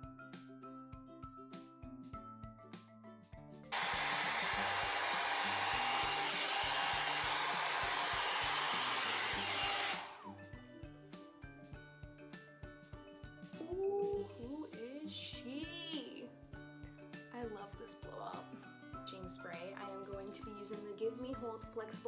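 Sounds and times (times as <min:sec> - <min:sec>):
hot-air brush blower rushing: 0:03.7 - 0:10.4
hot-air brush switch: 0:03.8 - 0:10.3
motor winding down whine: 0:03.8 - 0:10.3.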